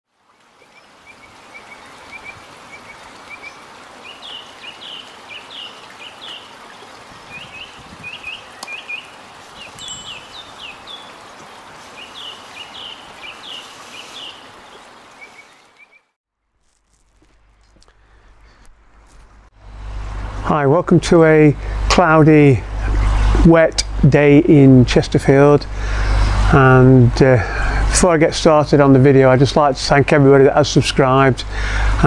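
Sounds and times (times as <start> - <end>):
running water hiss: 0.2 - 15.8
songbird chirping: 4.0 - 16.1.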